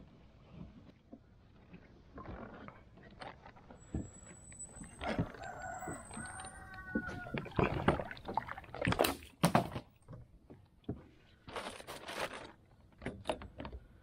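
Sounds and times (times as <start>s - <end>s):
water splashing: 4.1s - 9.9s.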